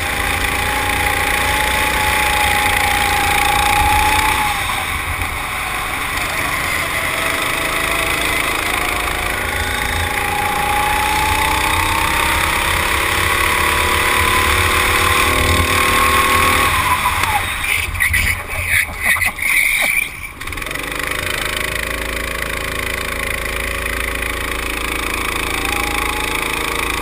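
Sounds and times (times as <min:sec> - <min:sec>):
go-kart engine revving: 0:00.0 - 0:27.0.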